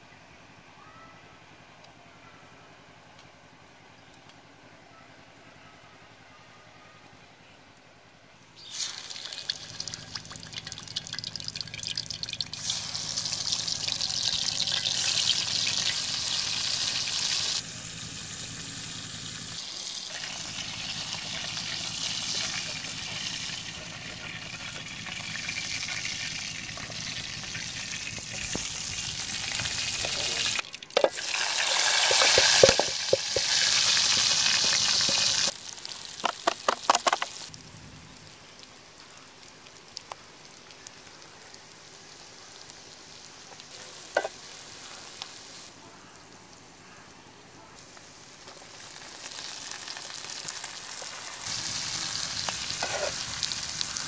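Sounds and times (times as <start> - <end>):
fish sizzling in hot oil: 8.6 - 37.6, 40.3 - 45.7, 48.0 - 54.0.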